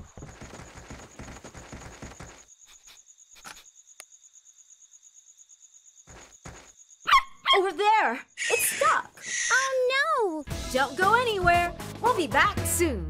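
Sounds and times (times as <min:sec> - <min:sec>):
running footsteps: 0:00.0 - 0:02.5, 0:06.1 - 0:06.8
crickets chirping: 0:00.0 - 0:10.4.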